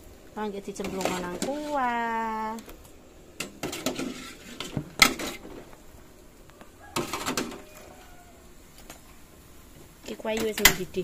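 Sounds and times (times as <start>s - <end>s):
metal ladle and pots clattering: 0.8s - 1.9s, 3.4s - 5.7s, 7.0s - 7.7s.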